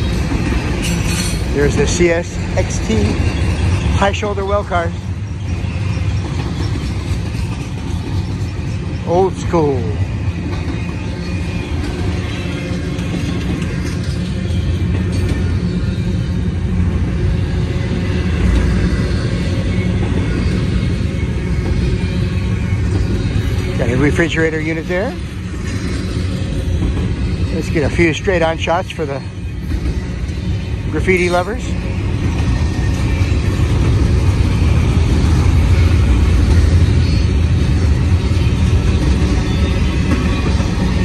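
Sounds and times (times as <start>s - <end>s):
freight train rolling past: 0.0s - 41.0s.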